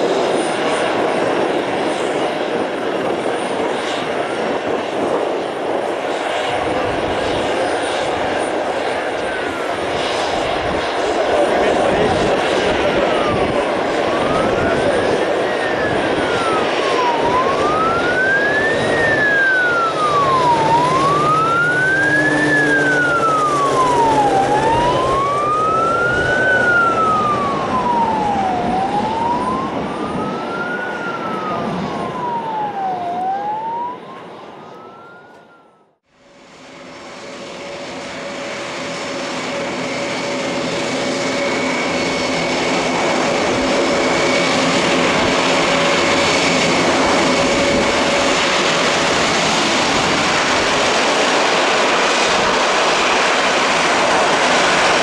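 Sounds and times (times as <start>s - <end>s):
wailing siren: 0.0s - 36.0s, 39.5s - 55.0s
aircraft engine: 0.0s - 55.0s
turboprop engine whining: 0.0s - 55.0s.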